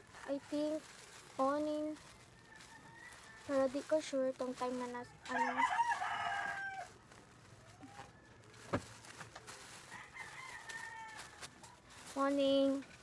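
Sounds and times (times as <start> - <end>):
rooster crowing: 5.3 - 7.0, 9.9 - 11.4.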